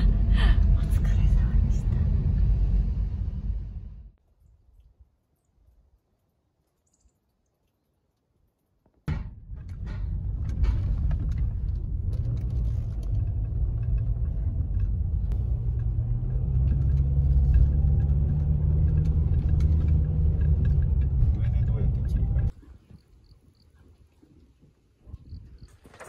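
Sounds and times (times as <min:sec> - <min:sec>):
road and engine rumble: 0:00.0 - 0:04.2, 0:09.1 - 0:22.7.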